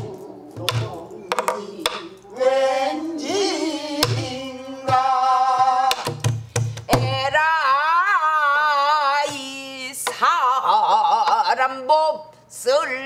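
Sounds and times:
woman singing long held notes: 0.0s - 6.1s.

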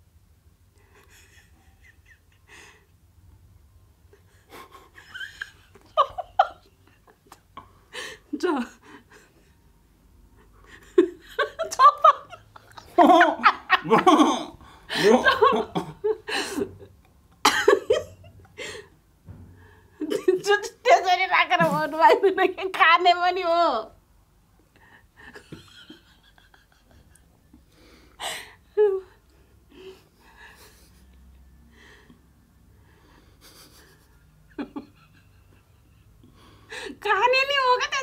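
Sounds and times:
stifled laughter: 10.6s - 16.8s
snorts of suppressed laughter: 33.4s - 35.7s.

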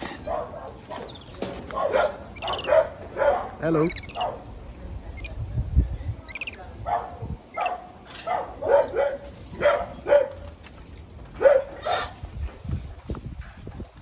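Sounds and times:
dog barking: 0.2s - 4.4s, 6.8s - 10.5s, 11.4s - 12.1s.

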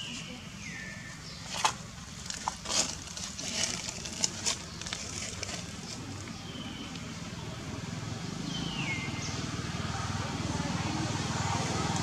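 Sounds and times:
dry crackling and scraping: 1.4s - 6.4s.

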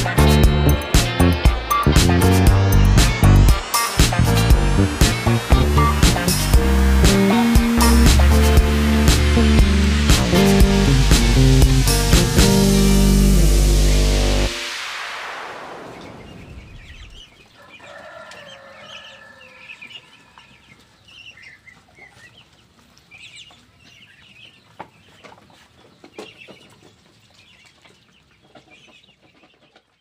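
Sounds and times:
music: 0.0s - 15.1s
poultry peeping and chirping: 15.9s - 30.0s.

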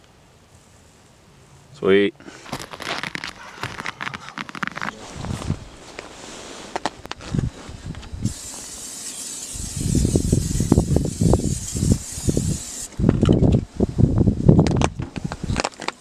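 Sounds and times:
aerosol can spray hissing: 8.2s - 12.9s.

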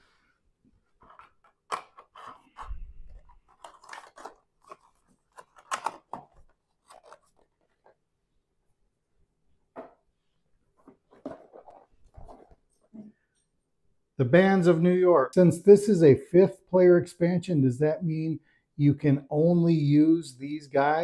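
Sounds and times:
packaging crinkling and rustling: 1.0s - 8.0s.

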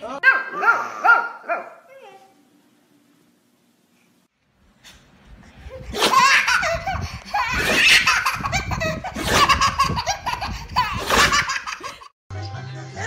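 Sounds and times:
baby belly-laughing: 5.8s - 12.0s.

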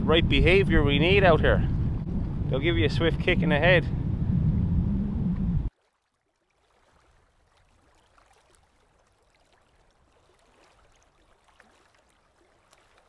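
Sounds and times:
wind on microphone: 0.0s - 5.7s
water lapping among boulders: 5.7s - 13.0s.

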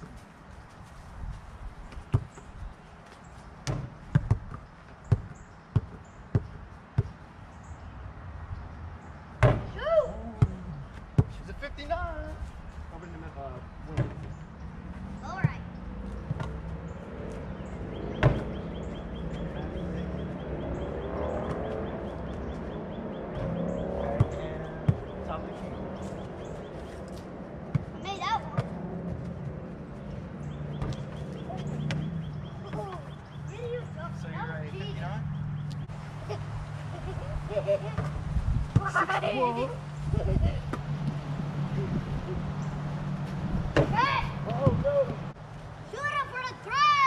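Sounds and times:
basketball bouncing on dirt: 1.9s - 2.6s, 3.6s - 7.2s, 9.4s - 9.8s, 10.4s - 11.4s, 15.3s - 16.8s, 18.1s - 18.8s, 24.2s - 25.2s, 27.6s - 29.6s, 30.5s - 33.2s.

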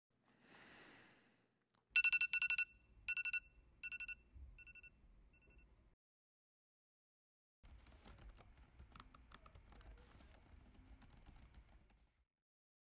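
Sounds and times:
laptop keyboard typing: 7.6s - 12.2s.

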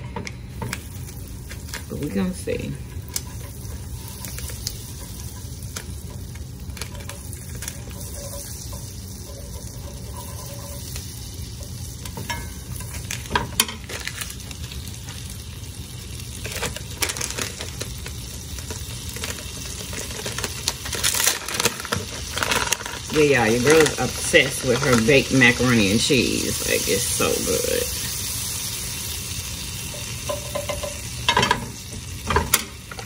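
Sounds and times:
butter sizzling in frying pan: 0.0s - 33.0s
fork stirring in pan: 2.9s - 14.2s.

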